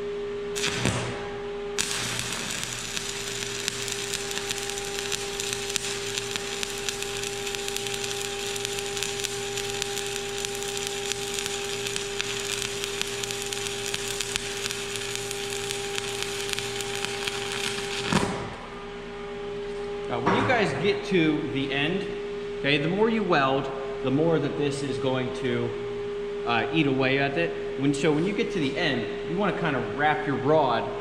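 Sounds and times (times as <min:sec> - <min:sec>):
steady hum: 0:00.0 - 0:31.0
welding arc crackling: 0:00.5 - 0:18.8.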